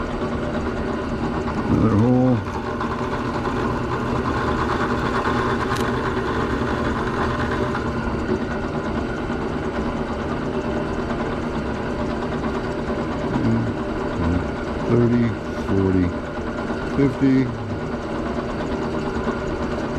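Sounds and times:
electric drill boring wood: 0:00.0 - 0:19.9.

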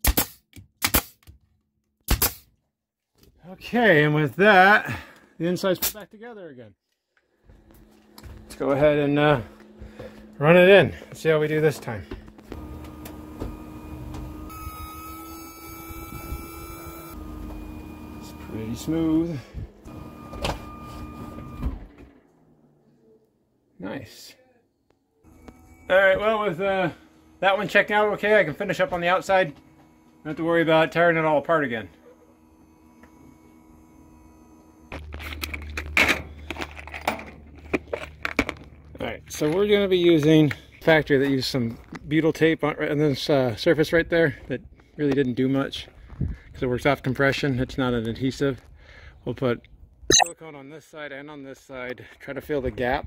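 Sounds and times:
steady low hum: 0:07.5 - 0:14.8
electric motor hum with whine: 0:07.5 - 0:22.0, 0:25.3 - 0:40.0.

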